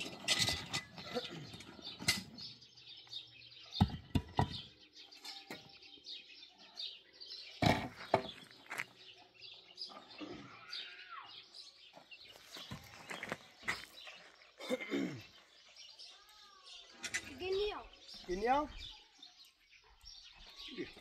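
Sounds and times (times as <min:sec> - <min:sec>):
small birds chirping: 0:00.0 - 0:21.0.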